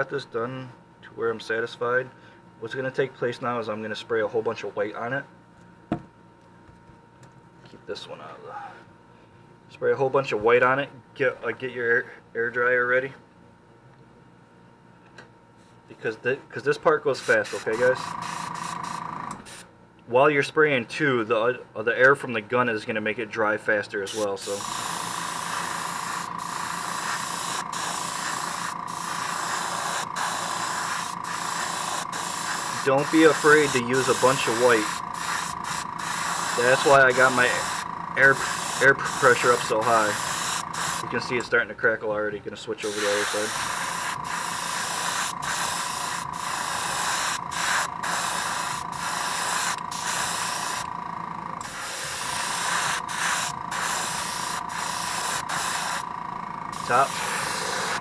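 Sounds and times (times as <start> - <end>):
airbrush spraying hiss: 17.2 - 19.7, 24.1 - 41.2, 42.8 - 50.9, 51.6 - 56.1, 56.8 - 58.0.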